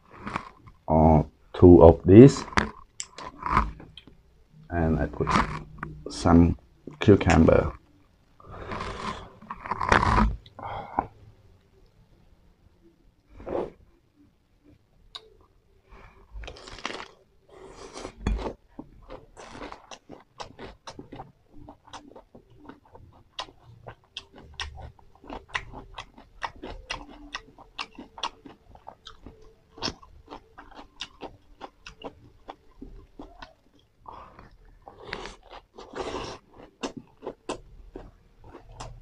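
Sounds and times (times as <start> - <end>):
crunchy bites: 8.5 - 10.6, 16.4 - 17.2
wet chewing: 16.4 - 39.0.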